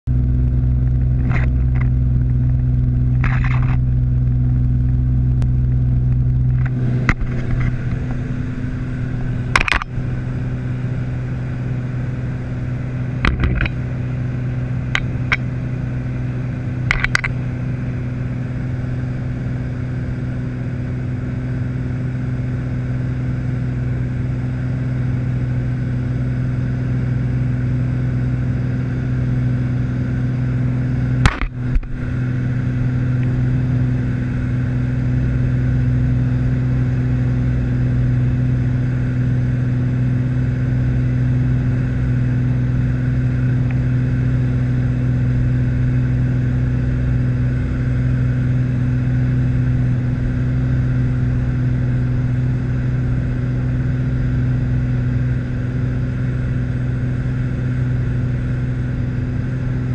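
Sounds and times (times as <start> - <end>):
propeller aircraft engine droning: 0.0 - 59.9
short clicks and rattles: 3.1 - 3.8, 9.5 - 9.9, 13.2 - 13.8, 16.9 - 17.4.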